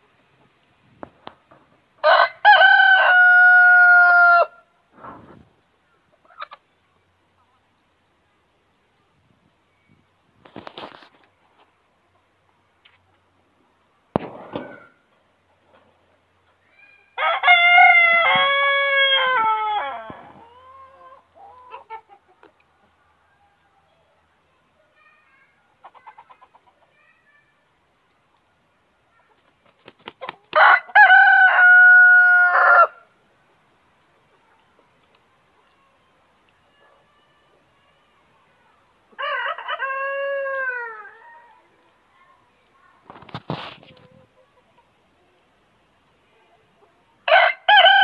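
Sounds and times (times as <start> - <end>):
rooster crowing: 2.0 - 4.6, 30.6 - 33.0, 47.3 - 48.0
chicken clucking: 5.9 - 7.8, 20.2 - 23.2, 25.7 - 27.0, 43.1 - 45.4.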